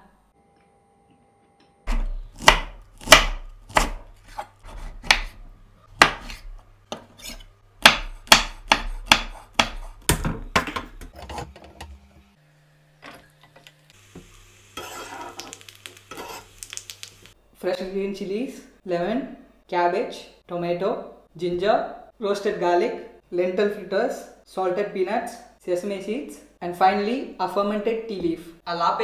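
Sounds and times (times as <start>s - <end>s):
knife chopping on wooden board: 1.9s - 10.3s.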